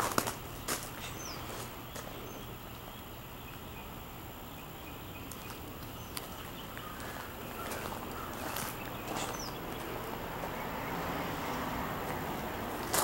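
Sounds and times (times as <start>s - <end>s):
footsteps on gravel and grass: 0.0s - 2.2s, 5.3s - 10.1s, 12.0s - 13.0s
faint bird chirps: 1.0s - 9.9s.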